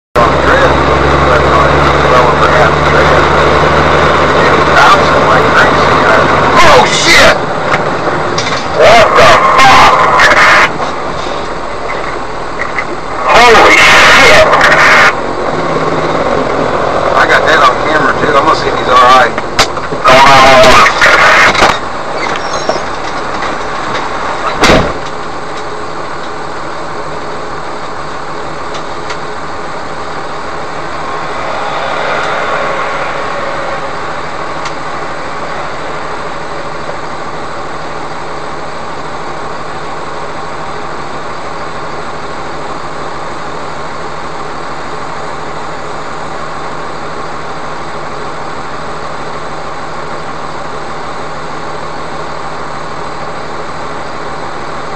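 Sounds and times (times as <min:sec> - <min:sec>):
loud thump: 0:24.5 - 0:25.0
vehicle passing: 0:29.9 - 0:37.0.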